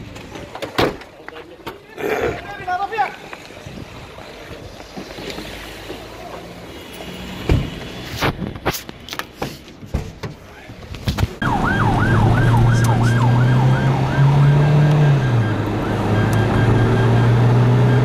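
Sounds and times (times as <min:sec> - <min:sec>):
siren in fast yelp: 0:11.4 - 0:18.0.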